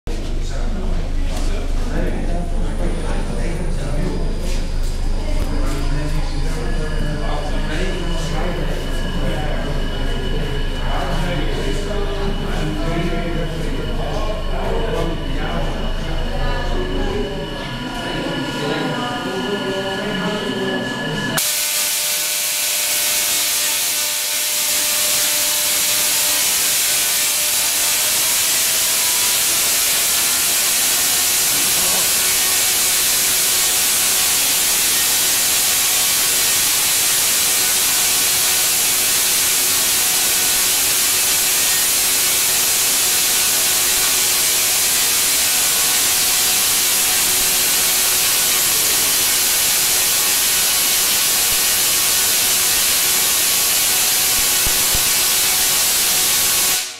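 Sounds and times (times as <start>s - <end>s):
tesla coil spark hiss: 21.4s - 56.9s.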